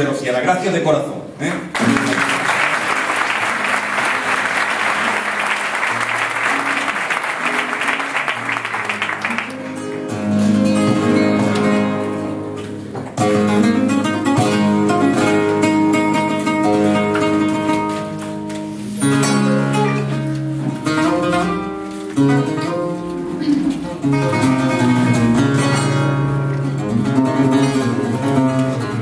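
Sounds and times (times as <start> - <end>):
flamenco guitar playing: 1.6 - 29.0
audience applause: 1.7 - 10.1.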